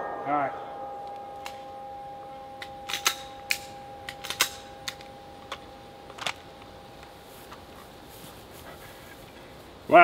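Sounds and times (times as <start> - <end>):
pistol metallic clicks: 2.6 - 7.6.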